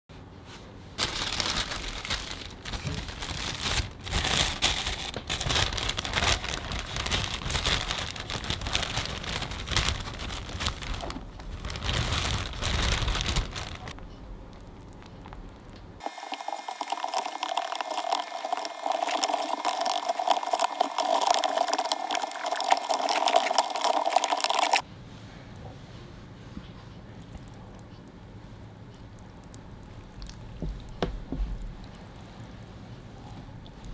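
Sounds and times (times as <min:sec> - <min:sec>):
powder pouring into plastic tub: 0:01.0 - 0:14.0, 0:16.0 - 0:24.8
plastic bag crinkling: 0:01.0 - 0:24.8.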